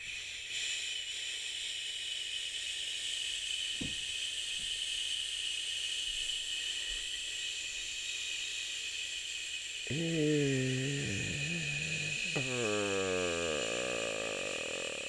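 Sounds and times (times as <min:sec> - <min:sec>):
person shushing: 0:09.9 - 0:15.0.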